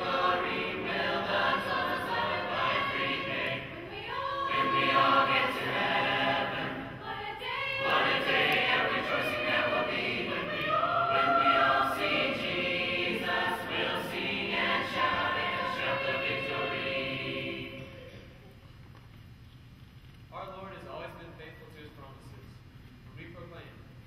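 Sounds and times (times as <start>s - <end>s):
choir singing a hymn a cappella: 0.0s - 18.4s.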